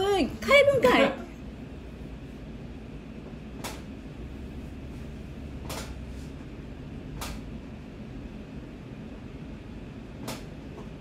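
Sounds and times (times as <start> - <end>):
low room hum: 0.0 - 11.0
short sharp clicks: 7.2 - 7.4.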